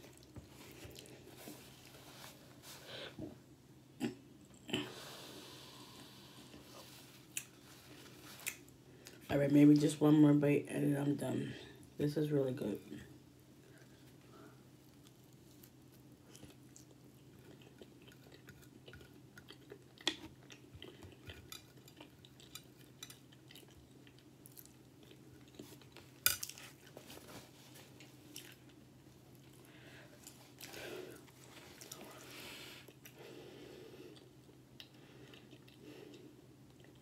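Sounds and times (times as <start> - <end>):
quiet chewing: 0.0 - 2.8, 5.9 - 9.2, 13.6 - 33.3, 33.9 - 37.0
faint low hum: 0.0 - 37.0.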